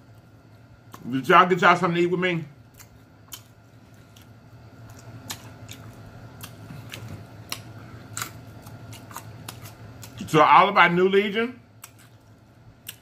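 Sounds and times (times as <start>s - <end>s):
faint low hum: 0.0s - 13.0s
chewing fried food: 2.6s - 10.4s, 11.7s - 13.0s.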